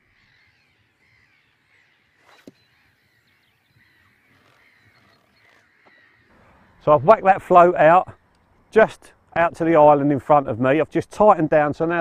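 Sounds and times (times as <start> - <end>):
faint bird chirping: 0.0 - 7.2.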